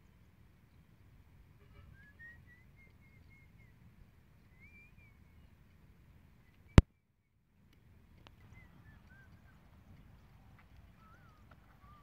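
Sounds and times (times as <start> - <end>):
distant bird warbling: 8.4 - 12.0.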